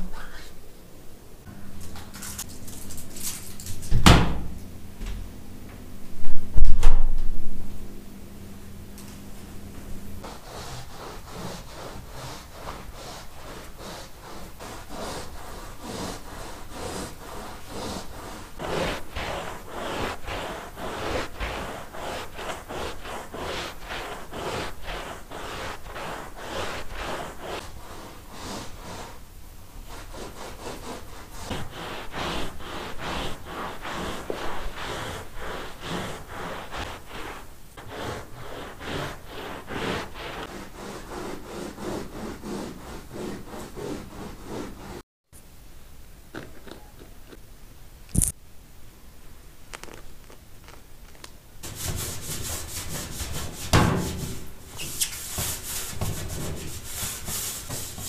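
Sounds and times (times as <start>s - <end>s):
cloth scrubbing a rug: 10.2s - 45.0s, 51.6s - 58.0s.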